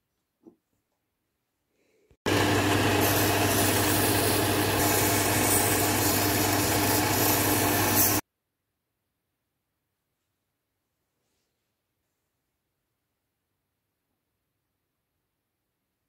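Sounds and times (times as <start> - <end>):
belt sander humming: 2.3 - 8.2
wooden stick sanded on belt: 3.0 - 8.2.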